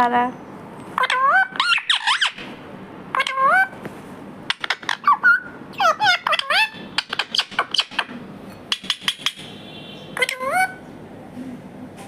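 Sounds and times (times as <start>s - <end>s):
parrot squawking and chirping: 0.9s - 3.8s, 4.4s - 10.9s.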